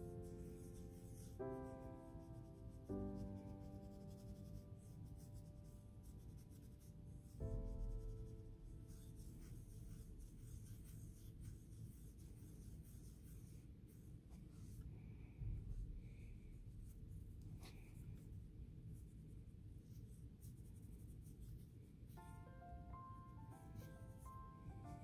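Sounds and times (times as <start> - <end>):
cotton swab scrubbing metal: 2.3 - 14.9.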